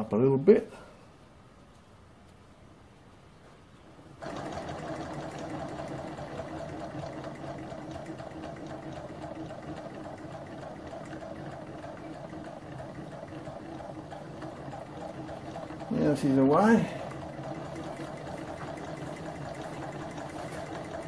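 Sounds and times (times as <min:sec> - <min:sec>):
small engine mechanical whirr: 0:04.2 - 0:21.0.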